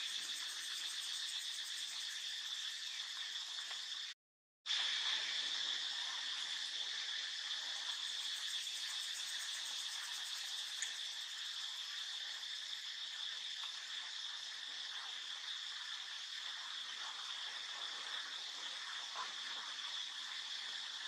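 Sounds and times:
insects buzzing: 0.0 - 4.2, 7.7 - 13.5.

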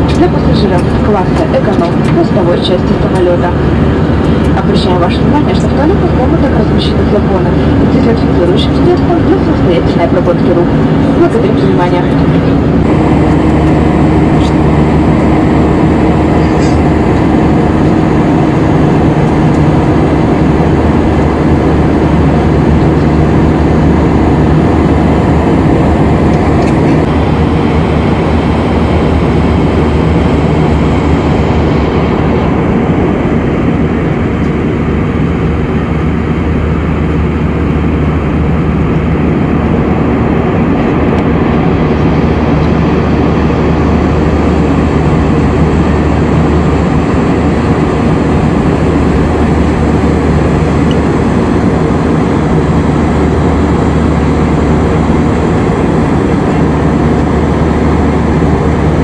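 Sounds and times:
jet engine cabin drone: 0.0 - 59.0
low hum: 0.0 - 59.0.

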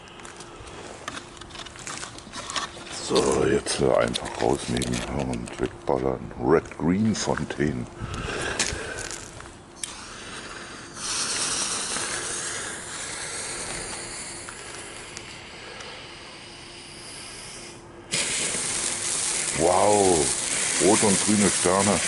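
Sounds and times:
fuse hissing: 8.0 - 22.0
firework fountain spraying sparks: 9.8 - 22.0.

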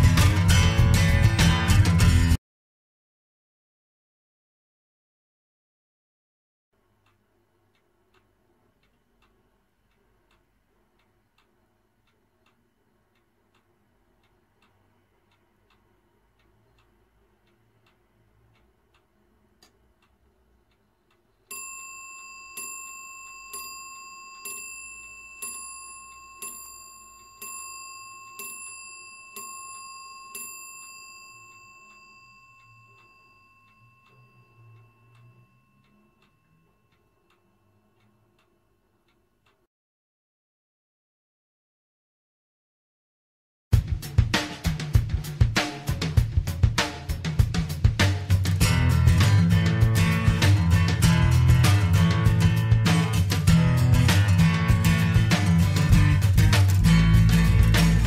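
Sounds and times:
clock ticking softly: 6.8 - 39.7
clock bell striking: 21.5 - 37.2, 48.6 - 58.0.

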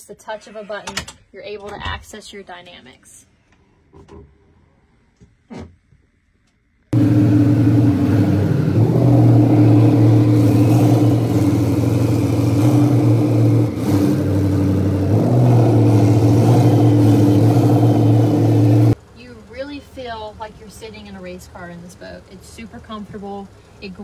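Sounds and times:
powerboat engines running: 7.0 - 24.0.

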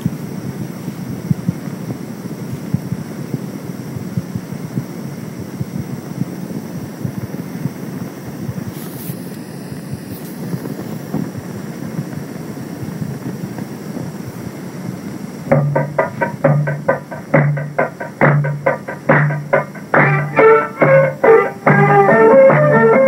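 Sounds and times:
wind rushing on microphone: 0.0 - 15.5
steady low hum: 0.0 - 23.0.

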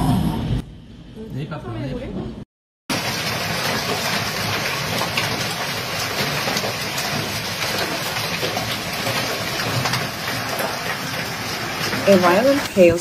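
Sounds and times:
hailstones pelting down: 2.9 - 13.0.

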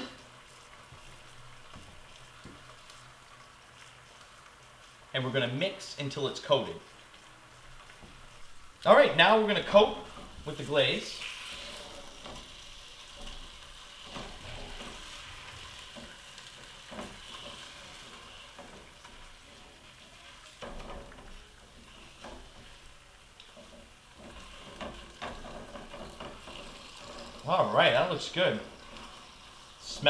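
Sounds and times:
chicken sizzling in skillet: 0.0 - 30.0
tongs scraping pan: 9.2 - 30.0.

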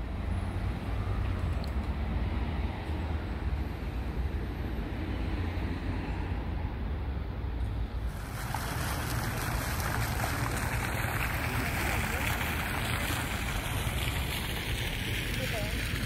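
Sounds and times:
passing traffic: 0.0 - 16.0
fountain water splashing: 8.0 - 16.0.

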